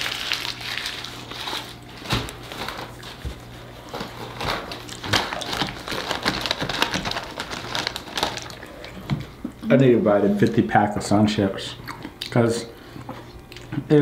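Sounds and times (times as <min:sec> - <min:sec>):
plastic bag crackling: 0:00.0 - 0:09.1.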